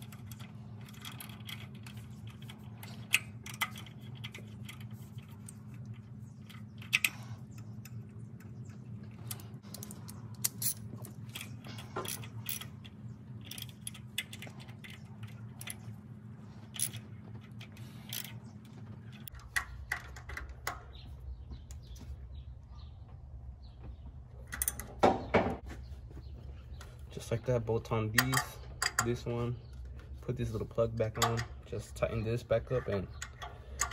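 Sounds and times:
steady low hum: 0.0s - 33.9s
light metallic clicks and taps: 28.1s - 29.3s
metal clanks: 31.0s - 31.8s.

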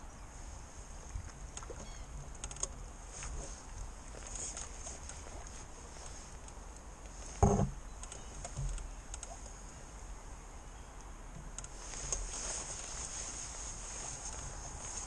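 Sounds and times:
fishing tackle clicks and knocks: 1.5s - 2.8s, 7.4s - 9.5s.

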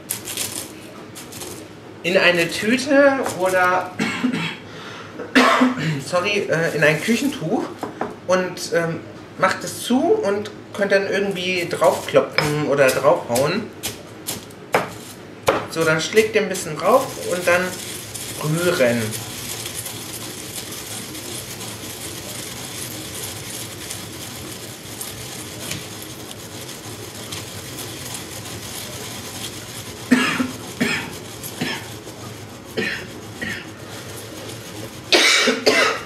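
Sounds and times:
person coughing: 4.0s - 6.0s, 30.1s - 31.8s, 32.8s - 33.7s, 35.1s - 36.0s
pestle grinding in stone mortar: 11.6s - 36.0s.

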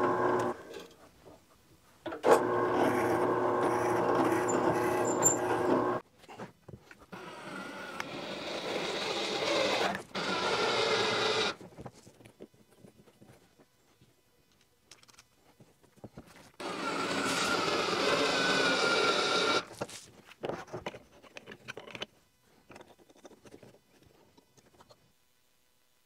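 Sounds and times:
cordless drill whirring: 0.0s - 0.6s, 2.3s - 6.0s, 7.2s - 11.6s, 16.6s - 19.7s
drill press motor humming: 0.0s - 0.6s, 2.2s - 6.0s, 16.6s - 19.6s.

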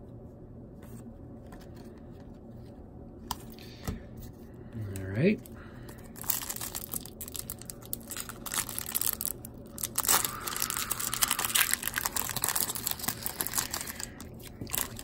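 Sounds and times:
foil wrapper crinkling: 6.0s - 15.0s.

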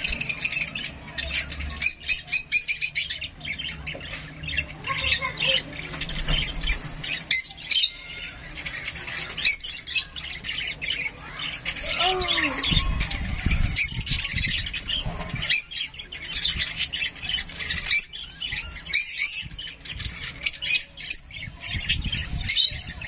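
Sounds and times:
parrot squawking: 6.6s - 23.0s.

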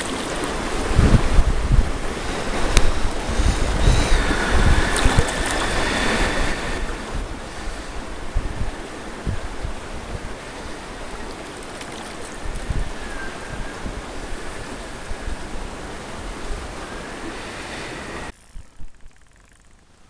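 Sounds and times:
wind buffeting microphone: 0.0s - 19.0s
moving water hiss: 0.0s - 20.0s
spinning reel whirring: 2.1s - 7.8s, 16.9s - 20.0s
reel clicks: 2.6s - 6.6s, 18.3s - 20.0s.

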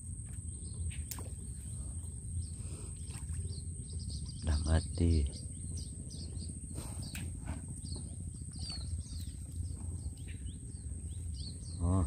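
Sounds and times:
small birds chirping: 0.1s - 12.0s.

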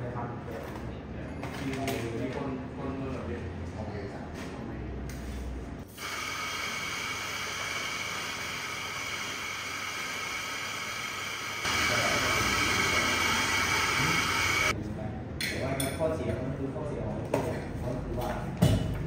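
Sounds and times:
coffee grinder grinding beans: 6.0s - 14.7s.

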